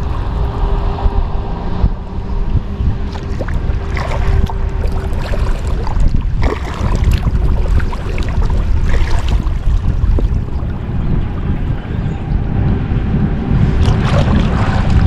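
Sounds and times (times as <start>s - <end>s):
wind buffeting microphone: 0.0s - 15.0s
paddle water splashes and drips: 3.1s - 10.8s.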